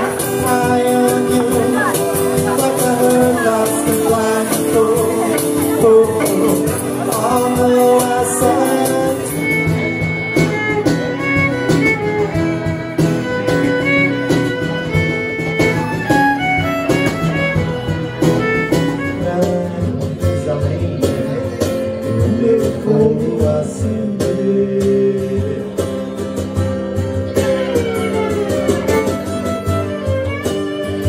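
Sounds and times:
bowed violin melody: 0.0 - 19.8, 27.3 - 31.0
cajon beat: 0.0 - 31.0
strummed guitar chords: 0.0 - 31.0.

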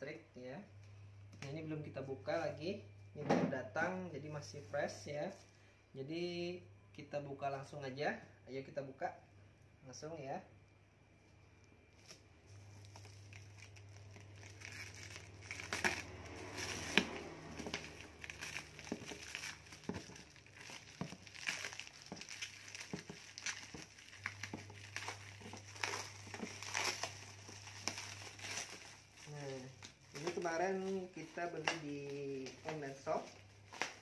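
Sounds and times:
plastic wrap crinkling: 11.7 - 34.0.

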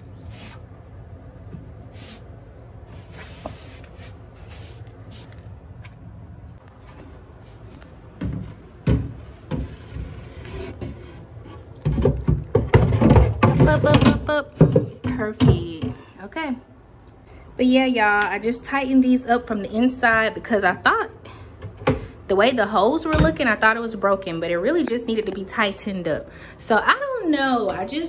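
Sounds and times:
wooden cabinet knocking and rattling: 11.8 - 16.0.

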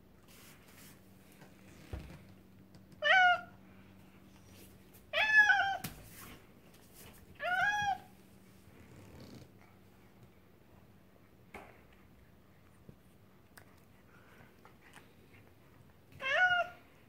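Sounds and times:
cat meowing: 3.0 - 3.5, 16.2 - 16.8.

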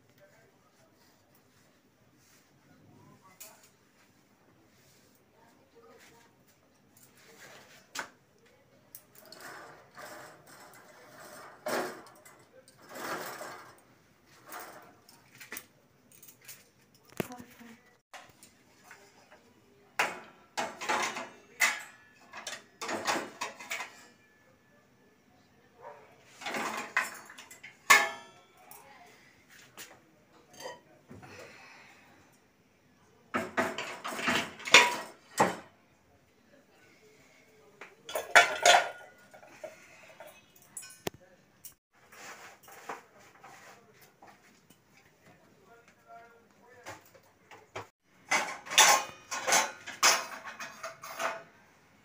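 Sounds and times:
dish rack rattling and scraping: 9.2 - 15.0, 26.4 - 28.4, 33.4 - 35.6, 38.1 - 40.3, 48.2 - 51.5.

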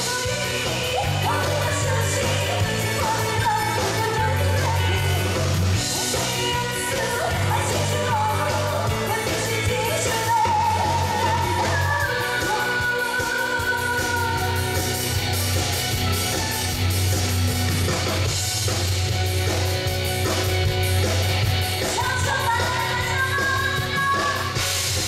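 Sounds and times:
person singing: 0.0 - 14.9, 21.8 - 24.7
live pop-rock band playing: 0.0 - 25.0.

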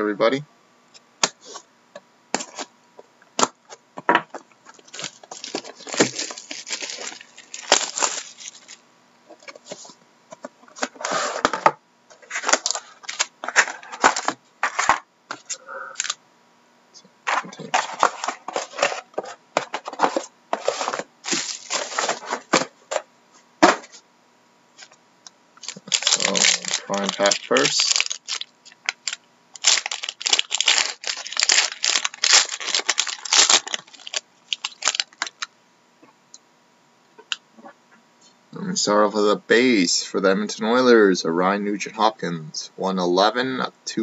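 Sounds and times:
cardboard packaging rustling: 3.4 - 10.0, 10.6 - 16.2, 17.3 - 23.0, 25.6 - 35.5
plastic shrink wrap crinkling: 4.6 - 8.8, 12.2 - 15.0, 16.0 - 16.2, 17.5 - 22.7, 25.6 - 35.5.

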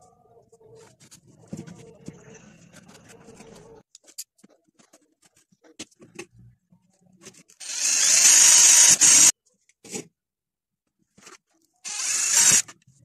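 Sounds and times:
faint clicks and scrapes: 0.4 - 7.6
cordless drill boring through disc: 7.6 - 9.3, 11.8 - 12.7.

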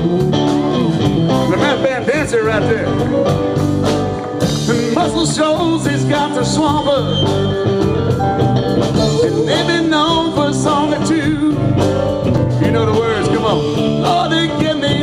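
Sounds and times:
drums: 0.0 - 15.0
electric guitars: 0.0 - 15.0
keyboard: 0.0 - 15.0
person singing: 4.4 - 7.7, 9.0 - 15.0.

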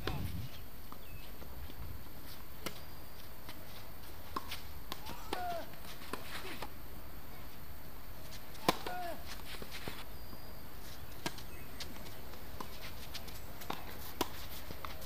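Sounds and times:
racket hitting tennis ball: 4.3 - 6.7, 8.5 - 10.0, 13.6 - 15.0
tennis ball bouncing: 8.5 - 9.8, 11.2 - 15.0.

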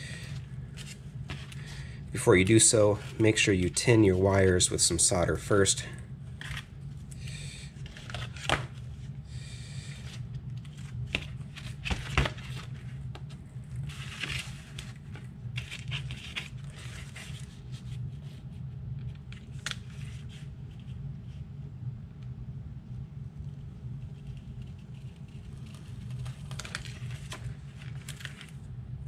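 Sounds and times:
steady low hum: 0.0 - 29.0
rustling and scraping of wires: 9.9 - 21.4, 23.5 - 28.7.

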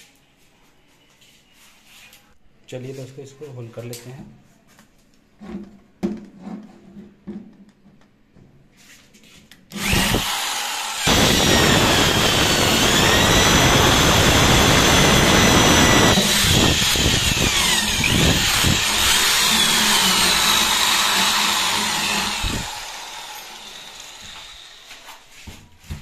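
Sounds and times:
electric drill boring into wood: 9.7 - 25.1.

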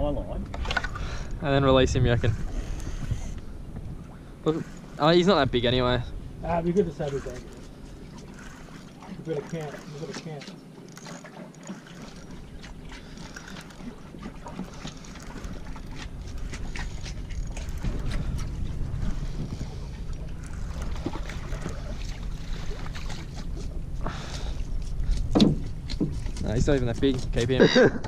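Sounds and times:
wind buffeting microphone: 0.0 - 9.9, 12.0 - 28.0
water slapping boat: 0.0 - 28.0
fish splashing: 6.2 - 26.4.

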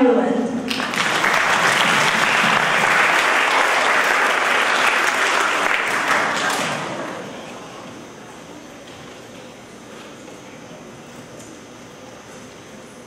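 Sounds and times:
audience applauding: 0.7 - 7.4.

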